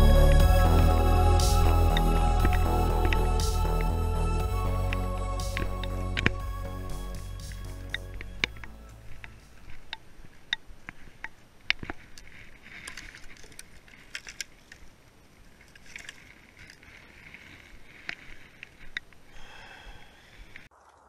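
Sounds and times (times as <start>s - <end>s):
brushwood rustling underfoot: 0.0s - 19.4s
dry twigs snapping: 7.6s - 14.9s.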